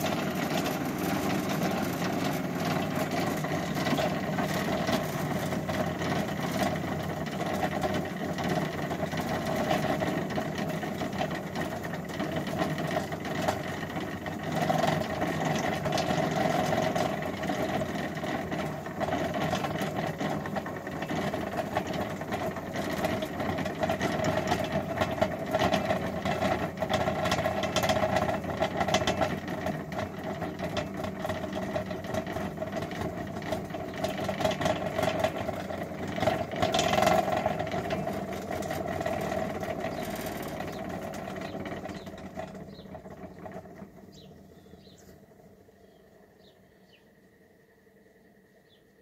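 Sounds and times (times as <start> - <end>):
cream separator whirring and rattling: 0.0 - 45.3
birds chirping: 39.8 - 47.4, 48.0 - 49.0.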